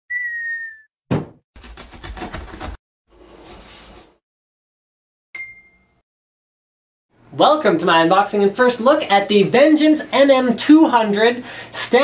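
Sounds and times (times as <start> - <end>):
falling whistle-like tone: 0.1 - 0.9
rapid rattling scuffle: 1.6 - 2.8
bright ding: 5.4 - 6.0.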